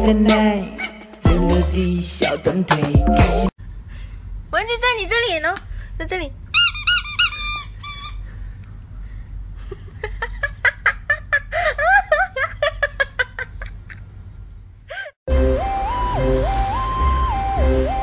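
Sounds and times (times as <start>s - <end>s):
rubber dog toy squeaking: 6.5s - 8.3s.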